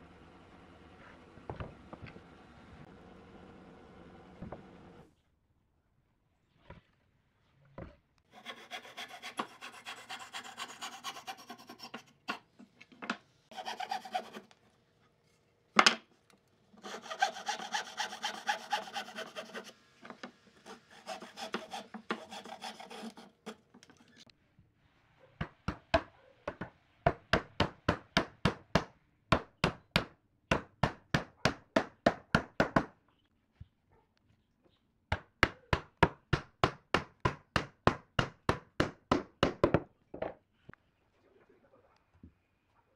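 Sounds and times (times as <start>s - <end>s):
hand saw cutting wood: 8.3s - 12.5s, 13.5s - 14.6s, 16.8s - 19.8s, 20.4s - 24.2s.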